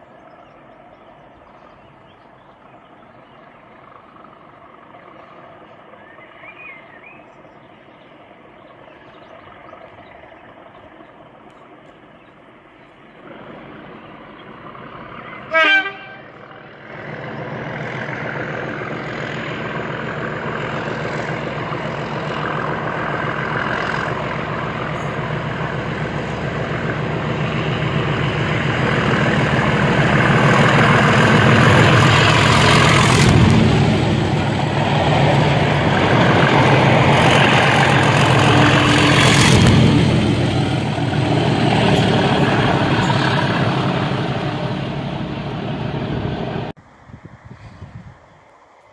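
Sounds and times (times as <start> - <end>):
diesel locomotives passing: 0.0 - 48.9
train horn blast: 15.2 - 16.7.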